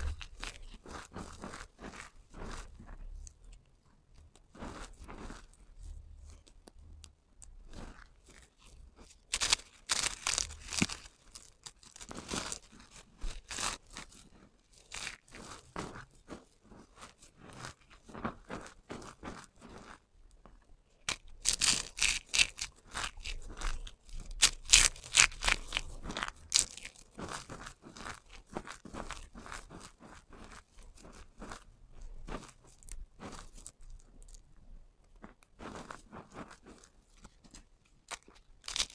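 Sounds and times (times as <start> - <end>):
soap crunching and crackling: 0.0 - 38.9.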